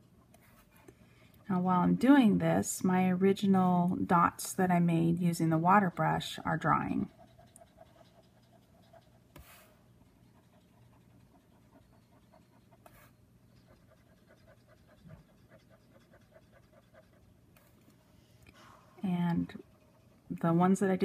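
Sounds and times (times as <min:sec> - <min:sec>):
soft rapid rhythmic rasp: 0:04.5 - 0:21.0.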